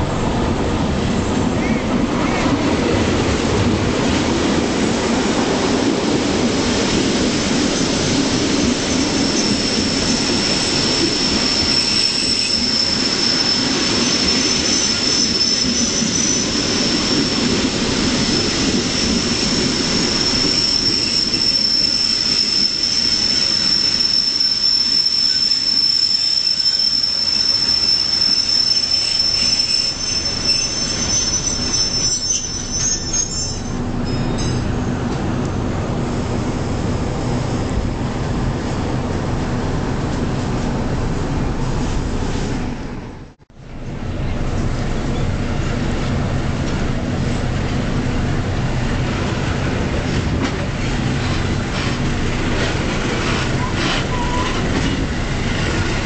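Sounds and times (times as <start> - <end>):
train wheels rumbling on rails: 0.0 - 56.0
high-pitched wheel squeal: 8.9 - 17.4, 18.2 - 34.6, 53.6 - 54.6.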